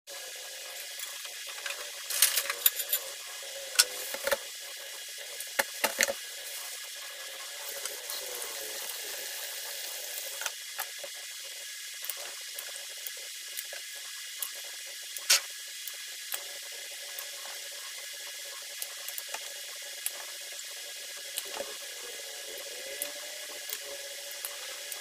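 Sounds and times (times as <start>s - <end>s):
steady hiss: 0.2s - 15.6s.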